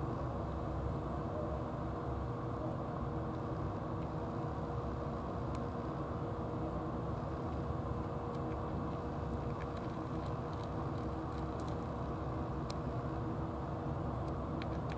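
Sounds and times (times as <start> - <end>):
faint hum: 0.0 - 14.9
cat crunching dry kibble: 9.3 - 12.2.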